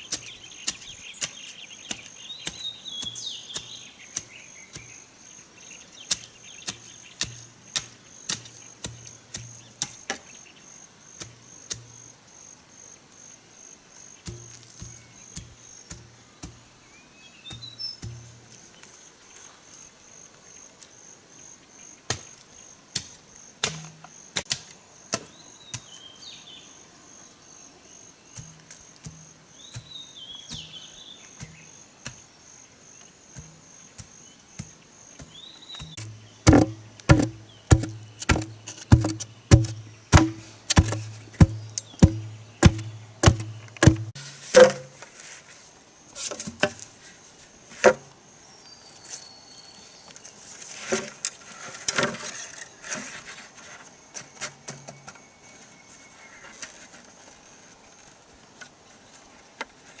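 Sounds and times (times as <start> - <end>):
insects buzzing: 0.0 - 59.8
stick pounding earth: 0.1 - 5.0, 6.0 - 10.3, 11.1 - 12.0, 14.2 - 18.6, 23.0 - 26.0, 28.4 - 30.8, 33.4 - 45.1
bamboo knocks: 35.8 - 45.0.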